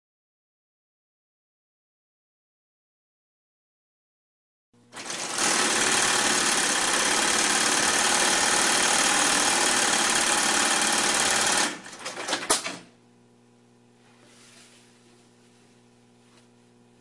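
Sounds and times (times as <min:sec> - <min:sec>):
sewing machine stitching: 0:04.9 - 0:12.9
faint steady hum: 0:12.8 - 0:17.0.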